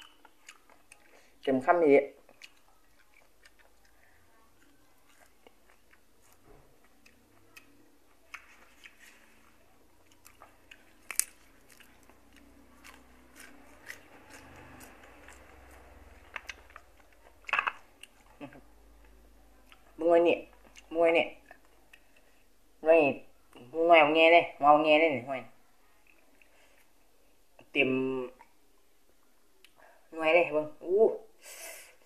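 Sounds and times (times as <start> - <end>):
wet chewing: 0.0 - 1.5, 2.1 - 19.9.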